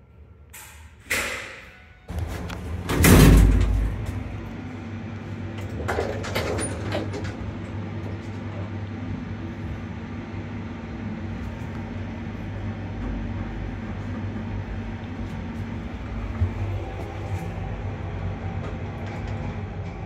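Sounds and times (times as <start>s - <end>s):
lift drive hum: 0.1s - 20.0s
lift doors shutting with thud: 0.6s - 4.7s, 5.4s - 8.5s.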